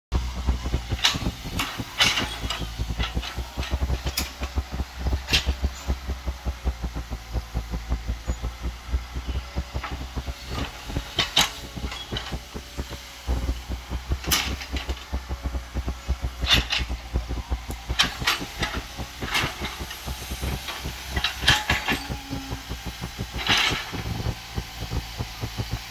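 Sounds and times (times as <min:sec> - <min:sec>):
excavator diesel engine throbbing: 0:00.1 - 0:25.9.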